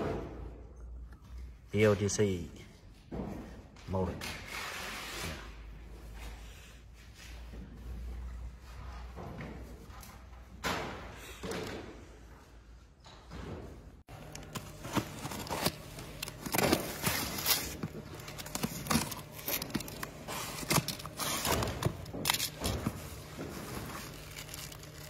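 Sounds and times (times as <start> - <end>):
plastic packaging crinkling: 14.1 - 25.0.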